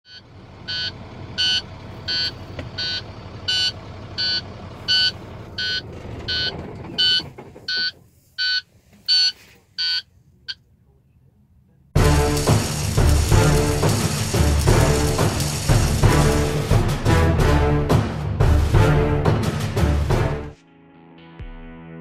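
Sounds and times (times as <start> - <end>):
warning buzzer beeping: 0.1 - 10.0
diesel engine rumbling: 0.1 - 20.5.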